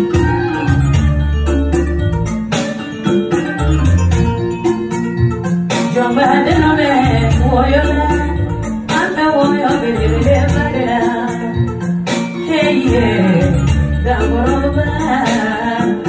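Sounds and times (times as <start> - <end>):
woman singing into a microphone: 0.0 - 1.2, 5.9 - 16.0
low bass line: 0.0 - 2.5, 10.0 - 11.0.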